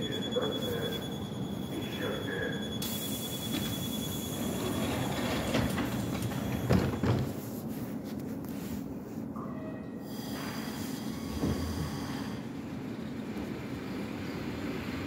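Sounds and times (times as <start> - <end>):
steady high tone: 0.0 - 6.4
train door hiss: 10.0 - 12.5.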